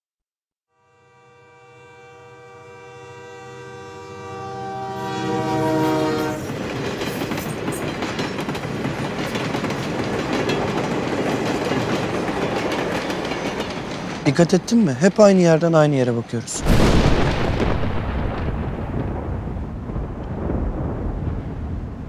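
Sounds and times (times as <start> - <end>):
train horn chord: 0.7 - 6.5
passing train rumble and clatter: 3.8 - 22.0.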